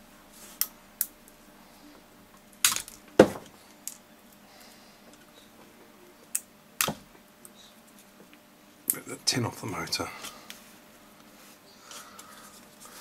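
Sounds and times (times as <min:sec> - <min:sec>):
pliers cracking plastic: 0:02.6 - 0:03.0.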